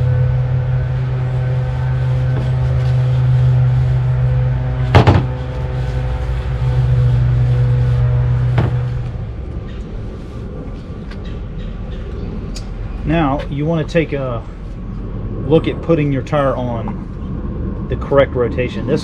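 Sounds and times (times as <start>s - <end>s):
engine hum: 0.0s - 19.0s
sharp knocks: 4.9s - 5.4s, 8.6s - 8.9s.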